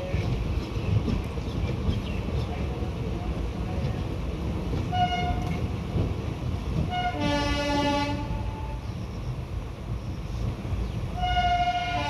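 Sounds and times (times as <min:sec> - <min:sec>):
moving train rumble: 0:00.0 - 0:12.0
train horn blasts: 0:04.9 - 0:05.5, 0:06.9 - 0:08.8, 0:11.2 - 0:12.0.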